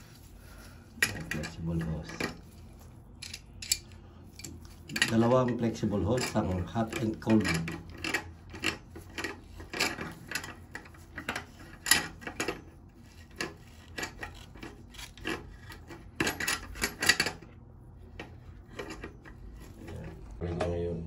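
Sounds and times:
gloved hands rubbing hoses: 0:00.0 - 0:01.0.

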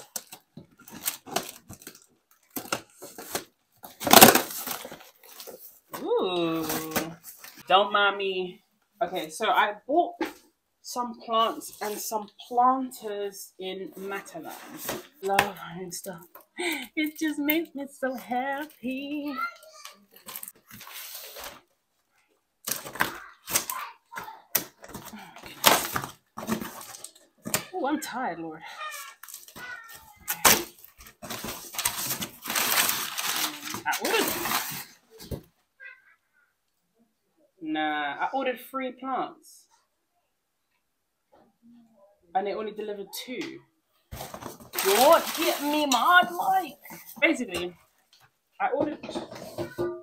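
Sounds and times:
packaging rustling: 0:00.0 - 0:06.0, 0:19.8 - 0:21.7, 0:22.6 - 0:23.8, 0:24.6 - 0:27.7, 0:28.9 - 0:35.4, 0:44.1 - 0:47.2
items clattering and crackling: 0:00.0 - 0:07.7, 0:13.9 - 0:28.0, 0:28.6 - 0:35.7, 0:43.5 - 0:50.0
cardboard box tearing: 0:04.0 - 0:05.5, 0:30.2 - 0:35.0, 0:44.1 - 0:46.0.

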